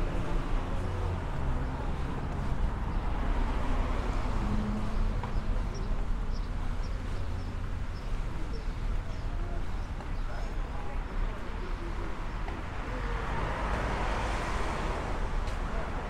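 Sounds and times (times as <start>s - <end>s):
passing traffic rumble: 0.0s - 16.0s
town street hum: 0.0s - 16.0s.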